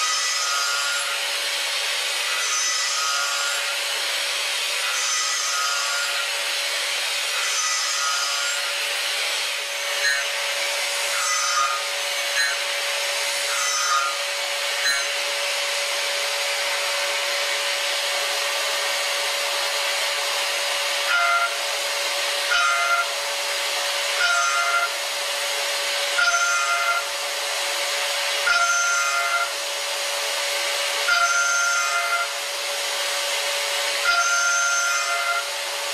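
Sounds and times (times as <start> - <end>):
shrill metal cutting tone: 0.0 - 1.3, 2.2 - 3.9, 4.8 - 6.6, 7.3 - 8.9, 9.6 - 23.4, 24.0 - 25.2, 25.9 - 27.2, 28.3 - 29.6, 31.0 - 32.4, 33.9 - 35.6
milling machine hiss and tone: 0.0 - 35.9.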